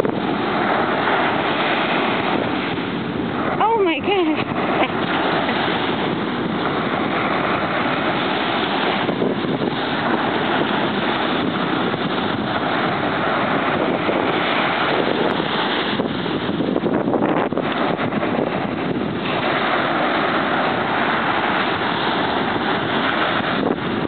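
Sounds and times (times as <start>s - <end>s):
ocean surf: 0.0s - 24.0s
wind on microphone: 0.0s - 24.0s.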